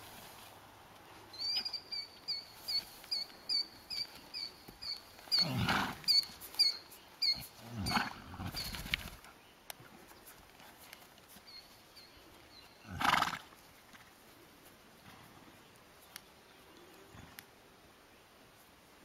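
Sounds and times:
horse snorting: 5.3 - 6.4, 7.3 - 8.7, 12.8 - 13.5
high repeating chirp: 6.1 - 7.5.

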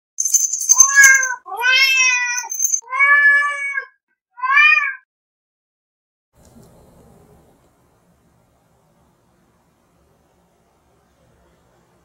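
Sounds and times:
cat meowing: 0.8 - 5.0.

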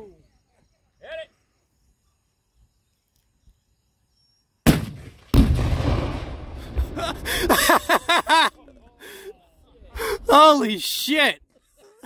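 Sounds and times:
rifle crack: 4.7 - 6.5
heavy explosion boom: 4.7 - 7.6.

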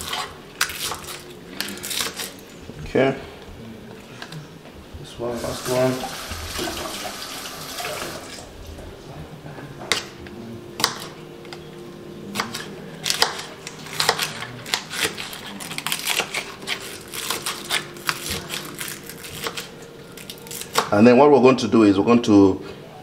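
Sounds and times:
knife chopping on plastic board: 10.8 - 11.1.

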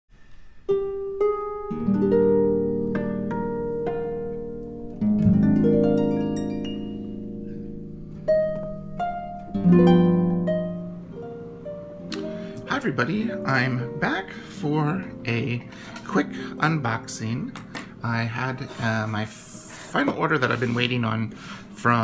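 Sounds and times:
held chords: 0.7 - 22.0
plucked notes: 0.7 - 22.0.

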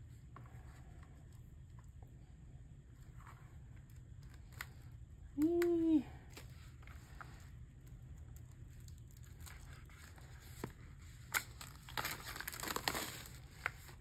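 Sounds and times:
plastic and paper crinkling: 6.2 - 14.0.

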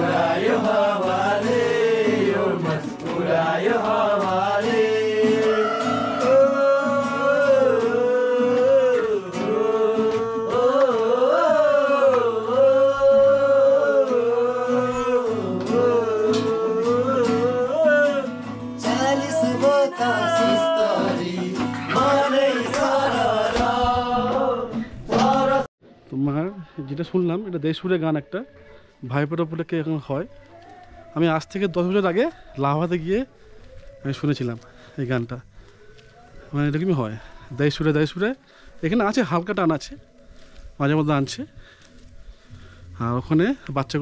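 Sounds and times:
festive folk song with instruments: 0.0 - 25.7.

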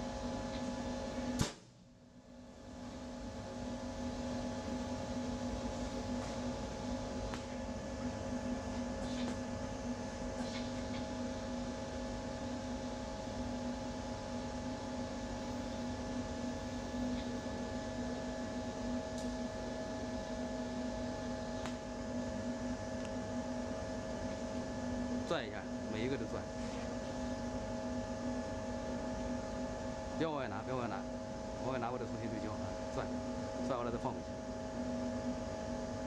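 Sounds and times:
extraction fan humming: 0.0 - 1.5, 2.2 - 36.0.

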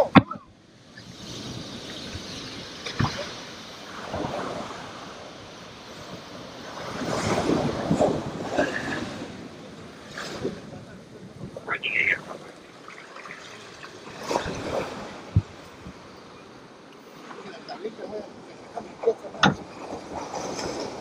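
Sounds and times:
wind buffeting microphone: 0.0 - 12.5, 14.2 - 16.6
ocean waves washing in: 0.0 - 21.0.

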